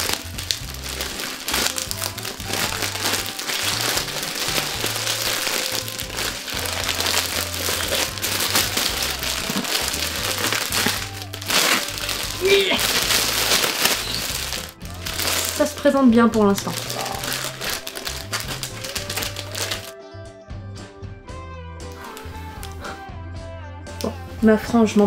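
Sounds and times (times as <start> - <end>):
plastic packaging crinkling: 0.0 - 19.9
background music with bass: 0.0 - 25.0.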